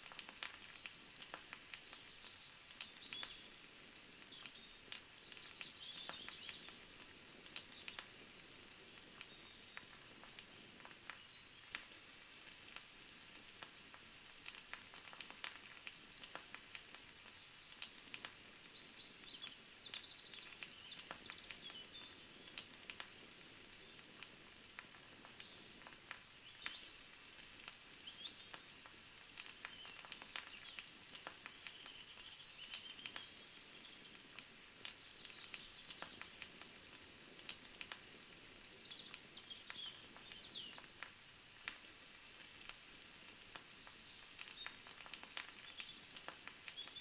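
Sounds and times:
sharp clicks and crackles: 0.0 - 3.4, 13.6 - 18.4, 28.5 - 33.3, 34.2 - 38.2, 39.1 - 42.0, 43.5 - 47.0
light hiss: 0.0 - 47.0
small birds chirping: 0.0 - 47.0.

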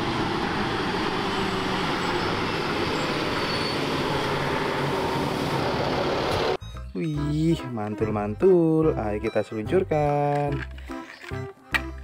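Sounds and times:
diesel truck engine drone: 0.0 - 6.6
road and tyre noise: 0.0 - 6.6.

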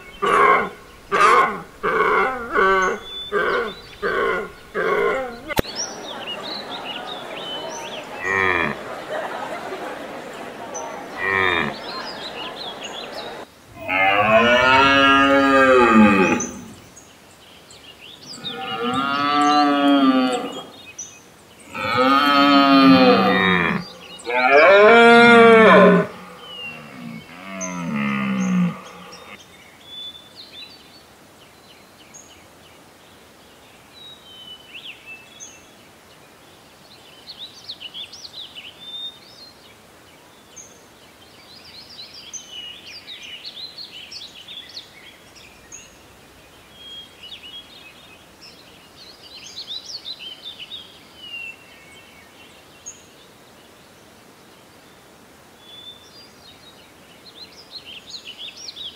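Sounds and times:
large animal lowing: 0.1 - 5.6, 8.0 - 8.9, 21.7 - 29.4.

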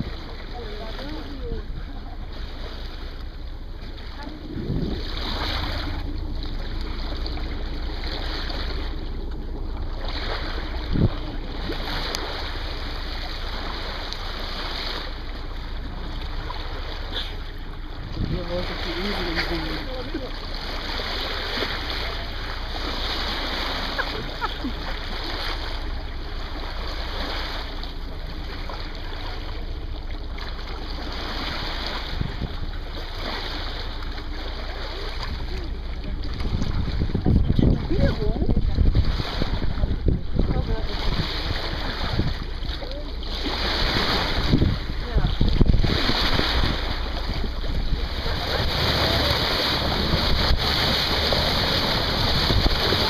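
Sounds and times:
low rumble: 0.0 - 53.0
water splashing along boat bow: 0.0 - 53.0
wind buffeting microphone: 3.4 - 9.1, 9.8 - 13.3, 17.6 - 19.9, 31.9 - 32.9, 35.2 - 42.7, 43.5 - 53.0.

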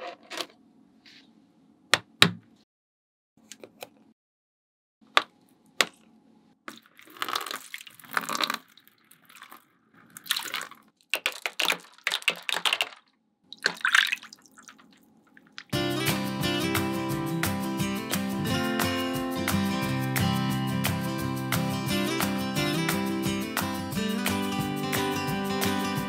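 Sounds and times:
water splashing and trickling: 6.7 - 15.8.

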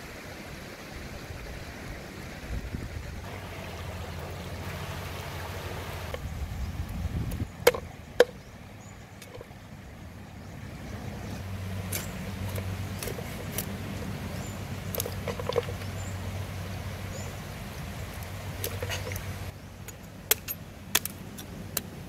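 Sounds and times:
stream water sloshing: 0.0 - 22.0
cleaver knocking: 7.6 - 8.4.

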